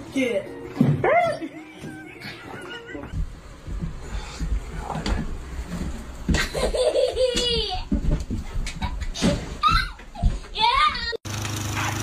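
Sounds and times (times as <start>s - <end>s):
young child laughing: 1.3s - 3.2s, 6.3s - 10.5s.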